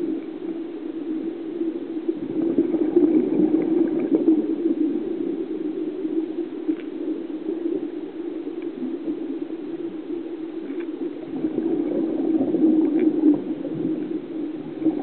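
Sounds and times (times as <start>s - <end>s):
underwater hum and rush: 0.0s - 15.0s
faint clicks: 0.1s - 0.6s, 6.4s - 11.2s, 12.8s - 14.2s.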